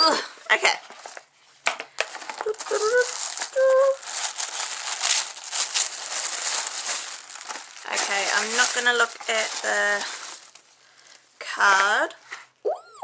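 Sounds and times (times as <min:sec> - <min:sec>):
wrapping crinkling and rustling: 0:00.6 - 0:12.5.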